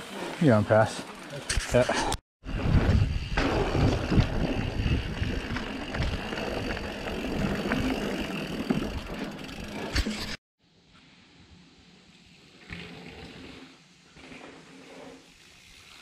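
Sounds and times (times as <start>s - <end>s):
bike tyres rumbling on dirt trail: 0.0s - 10.4s
wind buffeting microphone: 2.4s - 7.6s
bike rattling and clicking: 2.5s - 10.4s.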